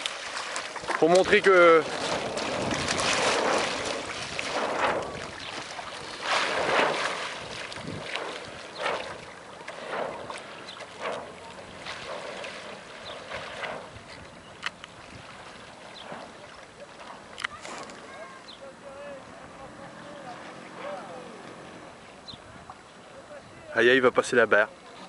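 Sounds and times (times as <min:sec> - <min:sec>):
shallow water splashing: 0:00.0 - 0:23.2
wind on microphone: 0:01.2 - 0:16.5.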